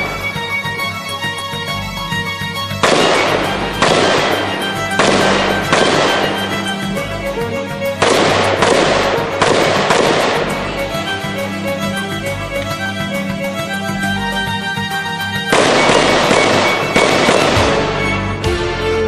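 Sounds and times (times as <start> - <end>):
background music: 0.0 - 19.0
rifle shots: 2.7 - 12.0, 15.5 - 18.2.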